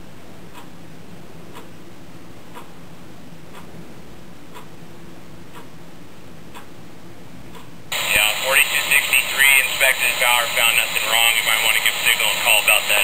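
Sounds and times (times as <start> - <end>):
faint hum: 0.0 - 13.0
soft ticks: 0.5 - 0.7, 1.5 - 1.7, 2.5 - 2.7, 3.5 - 3.7, 4.5 - 4.7, 5.5 - 5.7, 6.5 - 6.7
steady hiss: 7.9 - 13.0.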